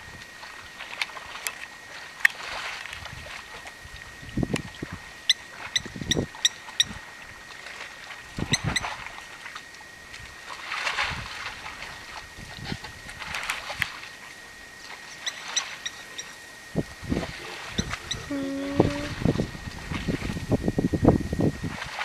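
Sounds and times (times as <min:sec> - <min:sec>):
mud and water splashing: 0:00.0 - 0:20.6
faint steady high tone: 0:17.6 - 0:19.2.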